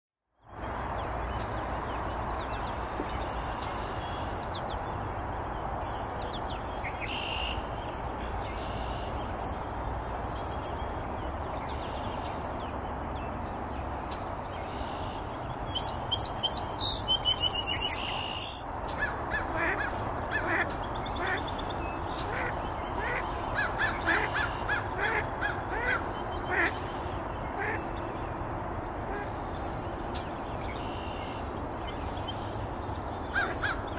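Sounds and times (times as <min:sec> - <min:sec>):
faint songbird chirps: 0:01.0 - 0:33.9.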